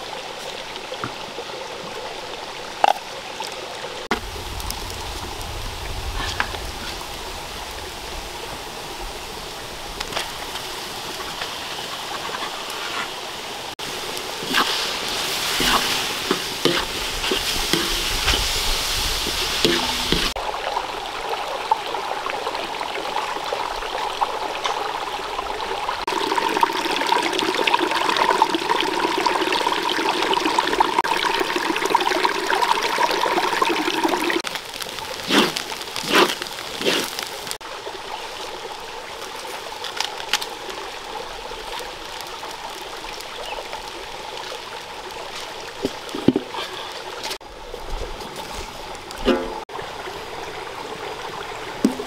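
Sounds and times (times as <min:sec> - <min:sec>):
stream running over rocks: 0:00.0 - 0:52.0
food frying in a wok: 0:13.9 - 0:20.5.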